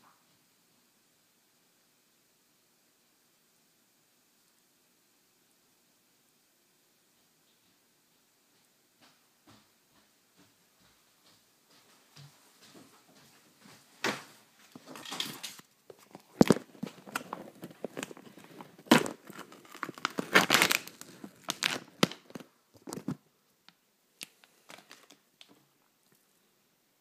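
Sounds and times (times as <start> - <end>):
plastic packaging crinkling and tearing: 14.7 - 23.2, 24.2 - 25.6.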